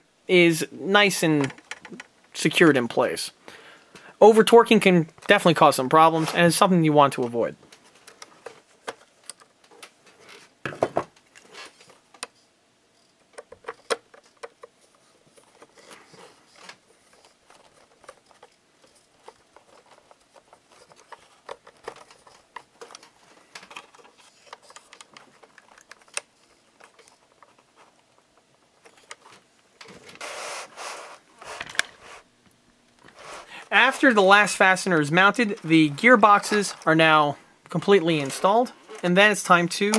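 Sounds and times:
hands handling metal parts: 0:13.2 - 0:30.6
loud rubbing noise: 0:30.2 - 0:32.3, 0:33.1 - 0:33.6.

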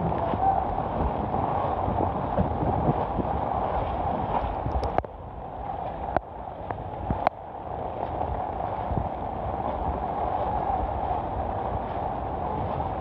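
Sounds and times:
floodwater rushing: 0:00.0 - 0:13.0
wind buffeting microphone: 0:00.0 - 0:13.0.

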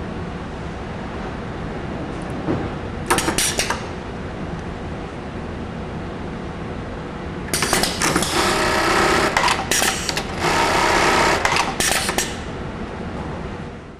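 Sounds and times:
steady machine hum: 0:00.0 - 0:13.9
industrial sewing machine stitching: 0:07.5 - 0:12.4.

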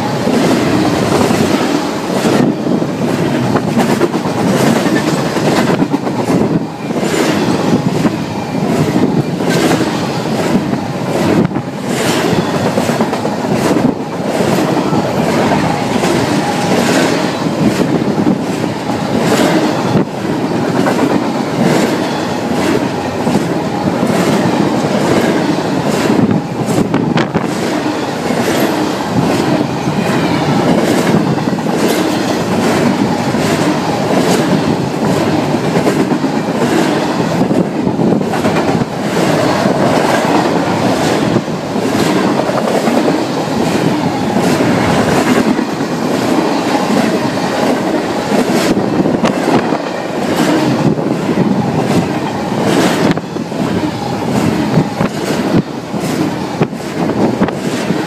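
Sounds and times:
freight train wheels rumbling: 0:00.0 - 0:58.0
wheels clacking over rail joints: 0:00.0 - 0:58.0.

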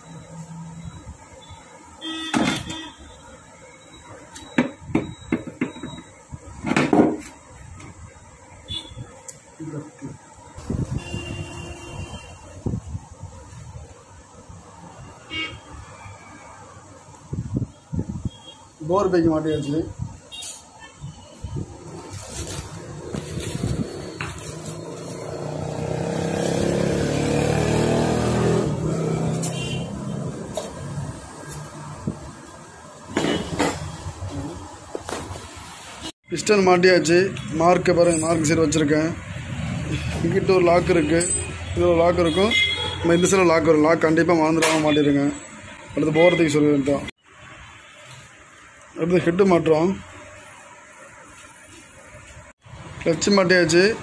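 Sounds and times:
vehicle engine passing: 0:21.9 - 0:32.0.

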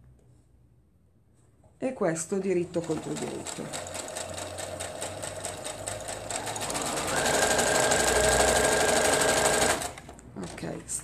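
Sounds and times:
electric sewing machine stitching: 0:02.8 - 0:10.6.

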